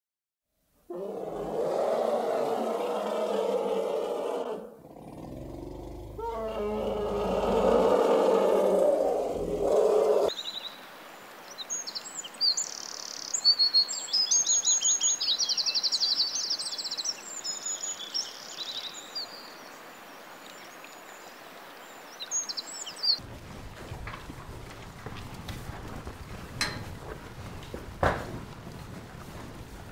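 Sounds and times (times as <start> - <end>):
elephant low call: 0.9 - 10.3.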